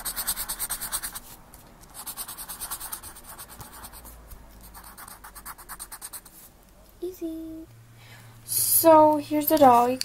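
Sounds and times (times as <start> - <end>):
pencil scratching on paper: 0.0 - 1.2, 2.0 - 6.3.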